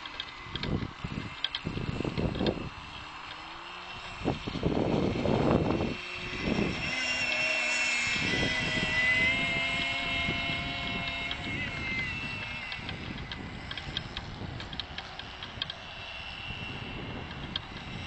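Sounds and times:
model boat engine whine: 0:00.0 - 0:18.0
wind buffeting microphone: 0:00.0 - 0:18.0.

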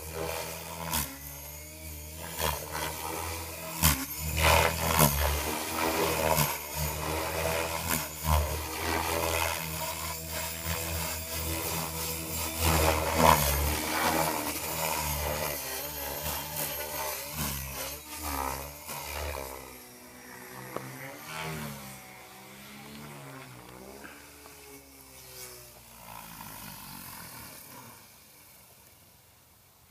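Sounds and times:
rc helicopter rotor buzz: 0:00.0 - 0:29.4.

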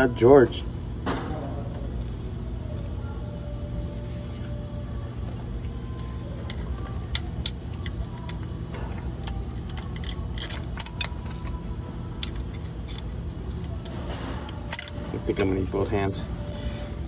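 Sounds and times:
steady low hum: 0:00.0 - 0:17.0
wrench clicking on engine metal: 0:09.2 - 0:11.5.

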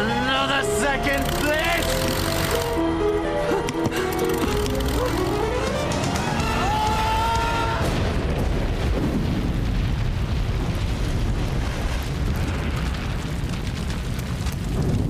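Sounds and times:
aircraft explosion rumble: 0:05.4 - 0:15.0.

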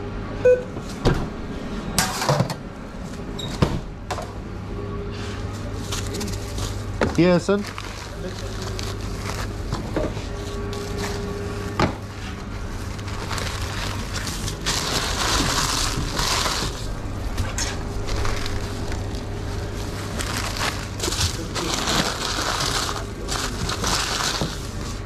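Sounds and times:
steady low hum: 0:00.0 - 0:25.0
wrapping paper rustling and crinkling: 0:05.8 - 0:25.0.

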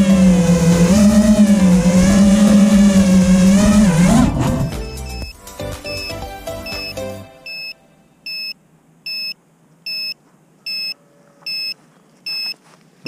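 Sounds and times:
background music: 0:00.0 - 0:08.2
electronic beeper beeping: 0:01.2 - 0:08.5.

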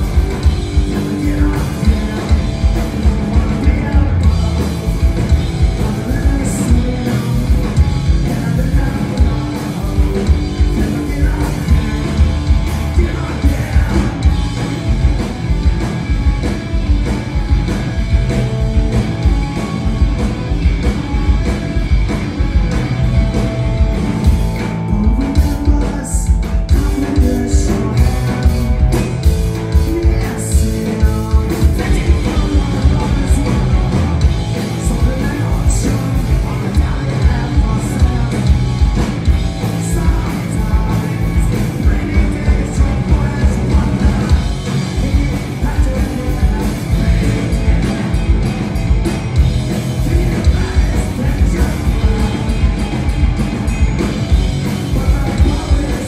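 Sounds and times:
person singing: 0:00.0 - 0:14.6, 0:24.6 - 0:48.4, 0:50.0 - 0:53.0, 0:54.6 - 0:56.0
punk rock band playing: 0:00.0 - 0:56.0.

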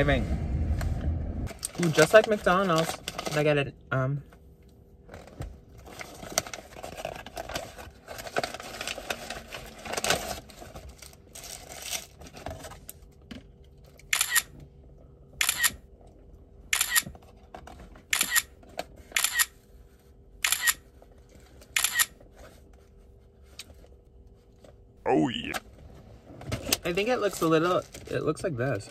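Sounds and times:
camera shutter clicks: 0:14.2 - 0:14.5, 0:16.8 - 0:17.0, 0:18.2 - 0:18.5, 0:20.5 - 0:20.8, 0:21.8 - 0:22.1.

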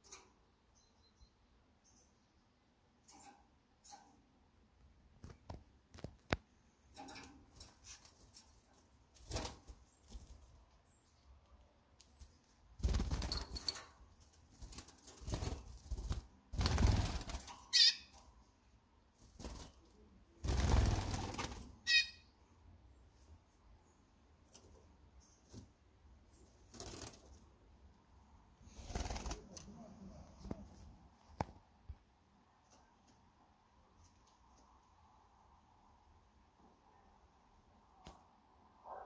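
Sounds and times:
bird wings flapping: 0:09.2 - 0:10.5, 0:12.8 - 0:17.6, 0:19.2 - 0:21.8, 0:26.6 - 0:27.4, 0:28.8 - 0:29.6.

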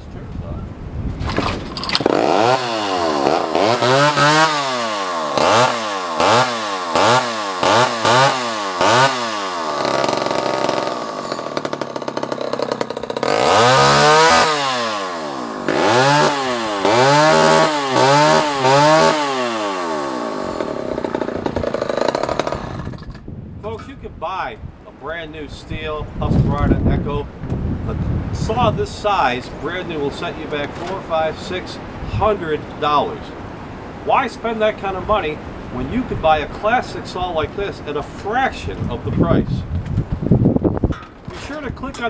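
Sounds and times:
chainsaw starting and revving: 0:01.3 - 0:23.3.

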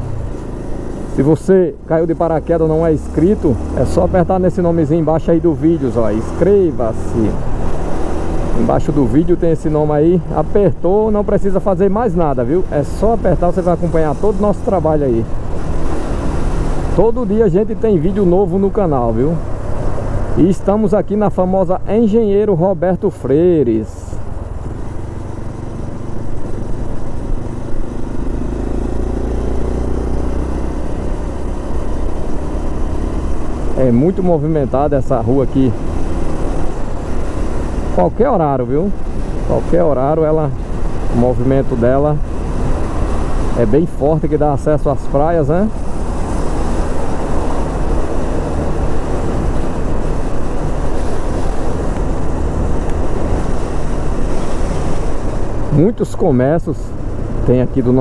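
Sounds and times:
motorcycle engine running: 0:00.0 - 0:20.4, 0:24.2 - 0:58.0
road and wind noise: 0:00.0 - 0:58.0.

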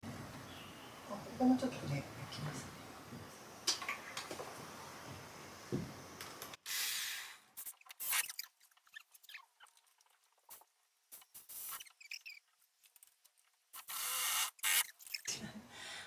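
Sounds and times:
electric drill driving a screw: 0:13.8 - 0:14.9.

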